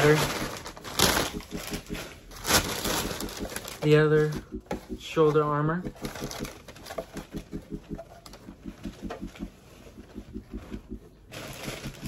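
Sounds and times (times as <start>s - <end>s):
packing paper rustling: 0.0s - 3.9s, 11.3s - 12.0s
low pulsing sound: 0.0s - 12.0s.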